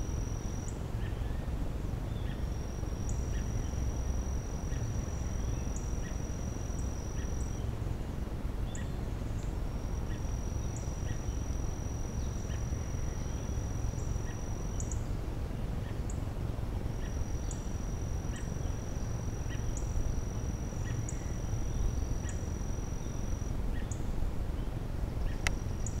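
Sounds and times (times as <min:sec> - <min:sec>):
high insect trill: 0:00.0 - 0:24.4
low background rumble: 0:00.0 - 0:26.0.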